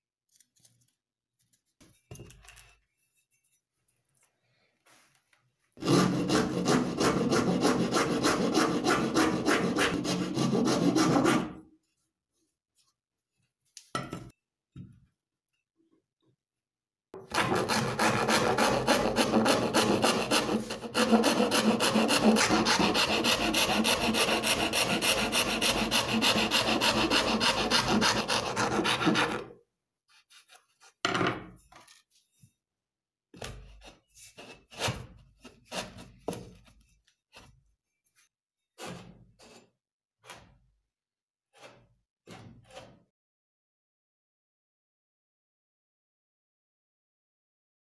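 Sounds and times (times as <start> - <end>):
wood rasp scraping wood: 5.8 - 11.6, 17.3 - 29.5, 33.7 - 36.4.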